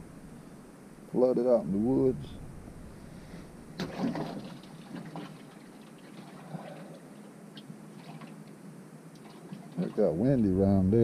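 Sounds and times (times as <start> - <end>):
fish splashing into water: 3.8 - 6.8.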